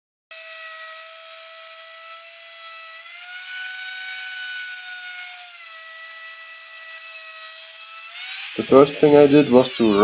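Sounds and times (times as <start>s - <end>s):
router cutting plywood: 0.3s - 10.0s.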